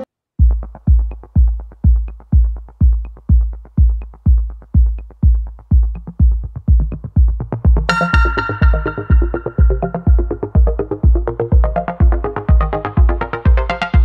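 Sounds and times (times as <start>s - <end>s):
electronic music: 0.0s - 14.0s
deep kick drum beating: 0.4s - 14.0s
faint percussion ticks: 0.4s - 14.0s.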